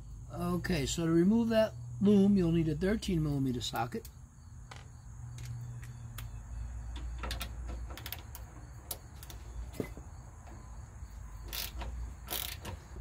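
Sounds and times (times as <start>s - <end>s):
ratchet wrench clicking: 7.3s - 9.4s, 11.4s - 12.8s.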